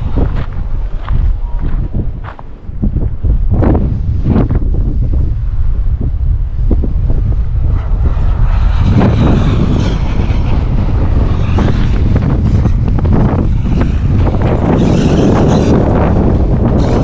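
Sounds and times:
wind buffeting the microphone: 0.0 - 17.0
rc truck driving roughly: 3.6 - 17.0.

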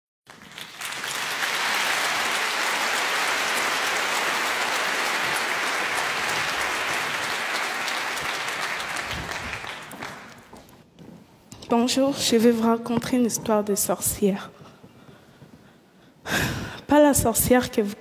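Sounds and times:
large audience applauding: 0.3 - 10.6.

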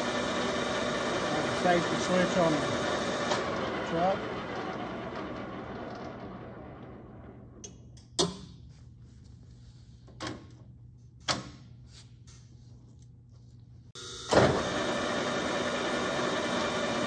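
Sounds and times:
lathe spinning down: 0.0 - 7.6, 14.3 - 17.0.

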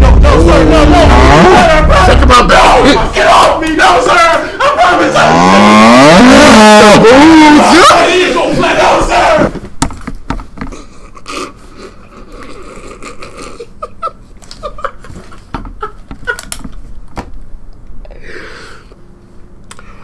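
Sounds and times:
man laughing hard: 12.0 - 16.6.

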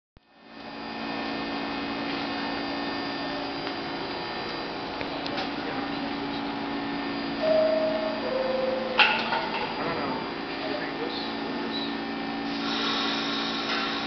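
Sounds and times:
subway train equipment hum: 0.3 - 14.0.

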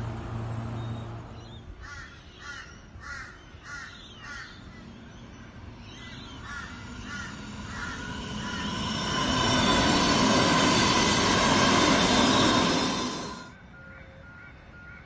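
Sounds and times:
electric train humming: 0.0 - 1.3, 4.4 - 15.0
crow cawing: 1.8 - 4.6, 6.4 - 8.6.

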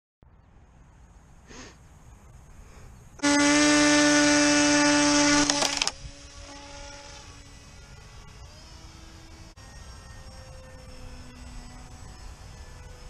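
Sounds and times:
model plane motor whine: 3.2 - 13.0.

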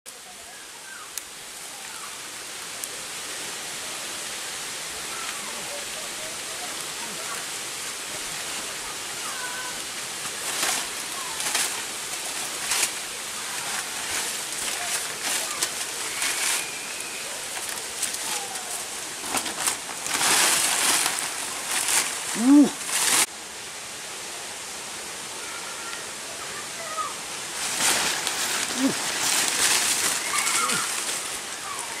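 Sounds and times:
steady background hiss: 0.1 - 32.0
dry leaves rustling and crackling: 4.6 - 23.3, 26.9 - 32.0
man exclaiming: 22.4 - 22.8.

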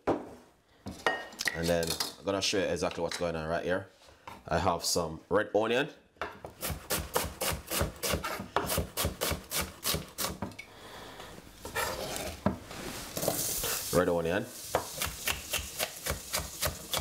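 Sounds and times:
scraping and rustling: 11.5 - 13.9.

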